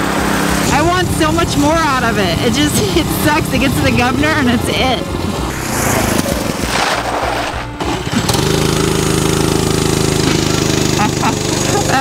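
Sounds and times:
kart engine at full throttle: 0.0 - 12.0
uneven rushing sound: 2.6 - 8.2.

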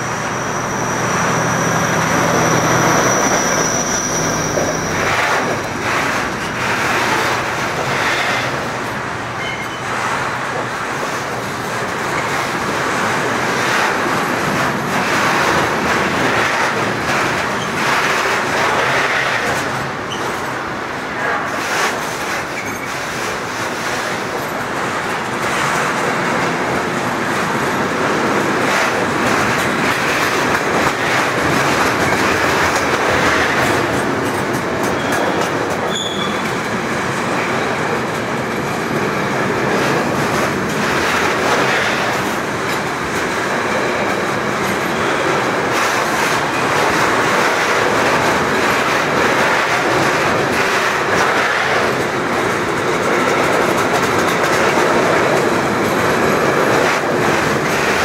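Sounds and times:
high wheel squeal: 0.0 - 6.1, 9.4 - 9.9, 34.9 - 36.6
freight train rumbling past: 0.0 - 58.0
wheels clacking over rail joints: 2.0 - 58.0.

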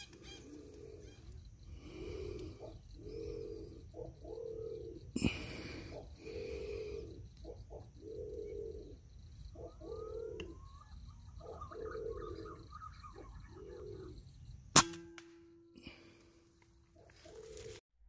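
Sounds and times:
faint bird chirps: 5.9 - 14.6
air rifle shot: 14.8 - 15.4.

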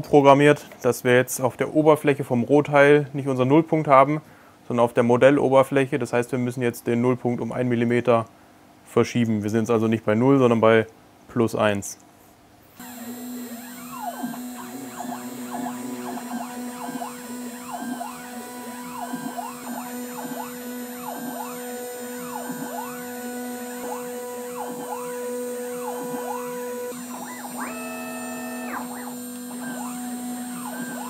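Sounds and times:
steady hum: 12.7 - 31.0
stepper motors whining: 12.8 - 31.0.

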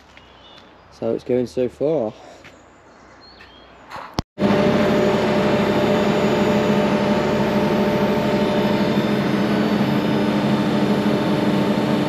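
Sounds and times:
heavy machinery engine humming: 4.4 - 12.0.

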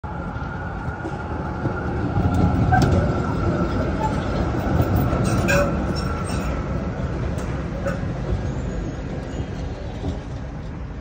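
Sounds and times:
tram wheels rumbling on rails: 0.0 - 11.0.

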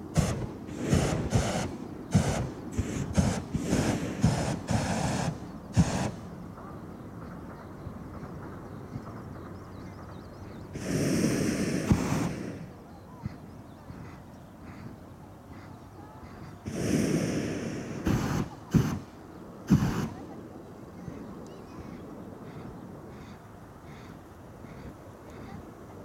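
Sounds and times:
propane burner blasts: 0.0 - 6.4, 10.7 - 12.8, 16.6 - 20.3.

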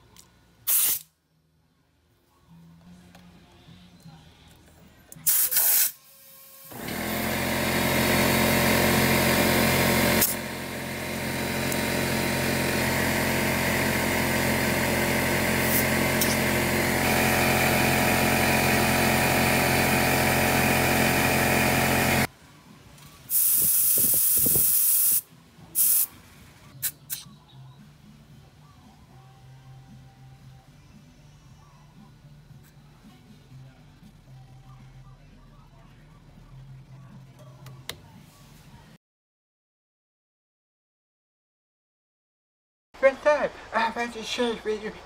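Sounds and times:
air hissing into tire: 0.7 - 1.1, 5.3 - 6.0, 23.3 - 26.1
short hisses at tire valve: 0.7 - 1.1, 5.3 - 6.0, 23.3 - 26.1
air compressor running: 5.2 - 22.3, 23.3 - 26.1.

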